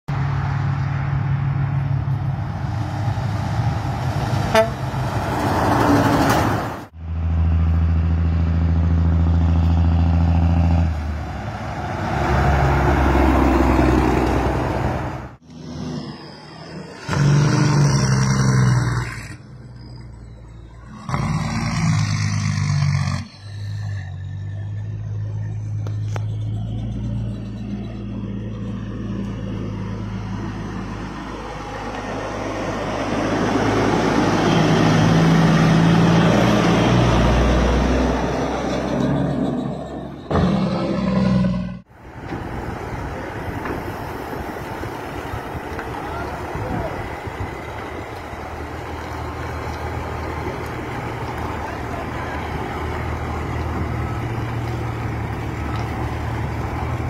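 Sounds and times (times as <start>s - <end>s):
heavy trucks driving past: 0.1s - 57.0s
air horn blasts: 4.5s - 4.9s.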